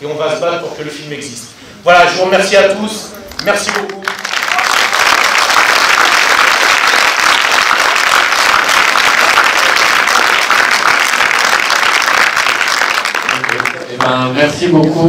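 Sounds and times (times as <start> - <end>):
audience applauding: 3.3 - 14.4.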